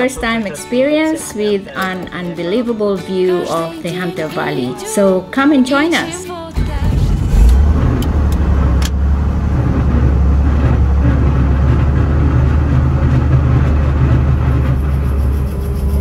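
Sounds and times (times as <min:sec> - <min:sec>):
vehicle engine rumbling: 0:06.6 - 0:16.0.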